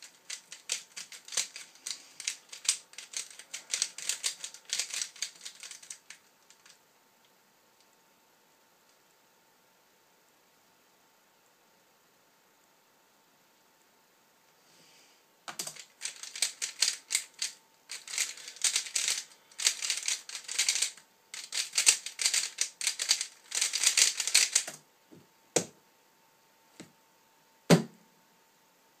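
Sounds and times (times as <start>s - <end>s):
plastic puzzle cube clicking: 0.0s - 6.7s, 15.5s - 24.8s.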